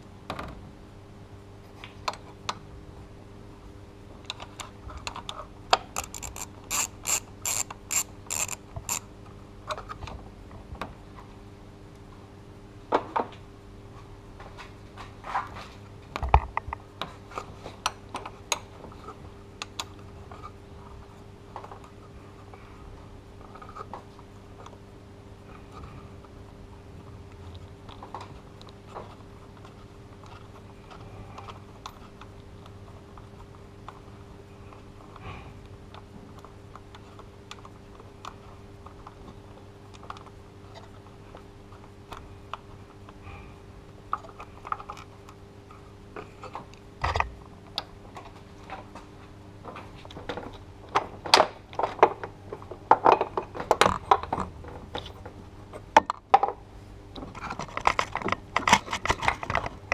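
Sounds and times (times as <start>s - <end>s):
socket wrench ratcheting: 6.0s - 9.1s.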